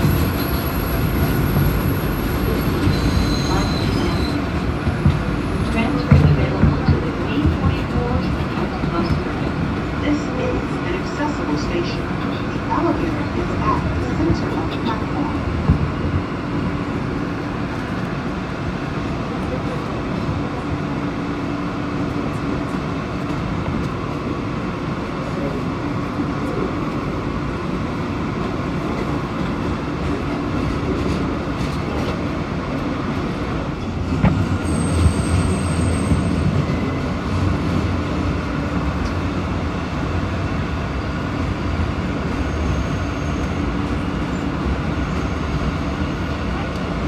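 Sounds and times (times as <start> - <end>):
subway train wheels rumbling: 0.0 - 47.0
high-pitched wheel squeal: 0.3 - 4.5, 42.4 - 43.6.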